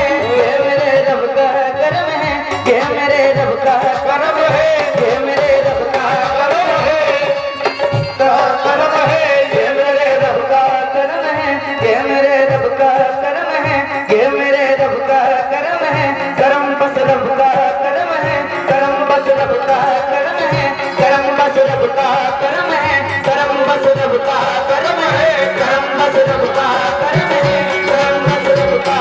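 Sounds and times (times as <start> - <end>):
harmonium: 0.0 - 29.0
men singing: 0.0 - 29.0
hand drum beat: 1.9 - 9.6, 20.5 - 29.0.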